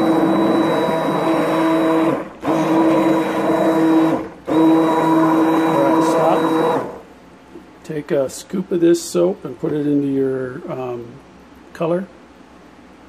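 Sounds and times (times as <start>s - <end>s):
stick blender motor whine: 0.0s - 7.1s.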